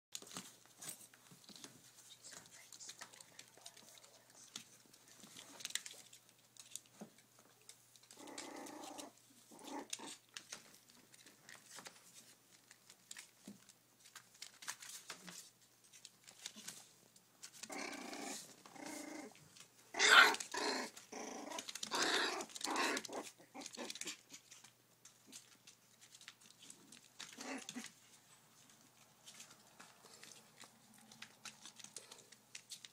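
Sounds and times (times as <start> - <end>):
puppies growling: 2.8 - 12.0, 17.4 - 32.9.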